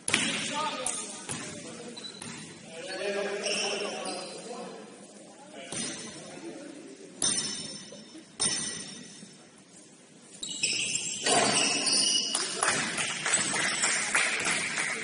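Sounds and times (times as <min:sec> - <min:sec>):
basketball court noise: 0:00.0 - 0:02.7, 0:10.4 - 0:15.0
short squeaky tones: 0:10.4 - 0:12.4.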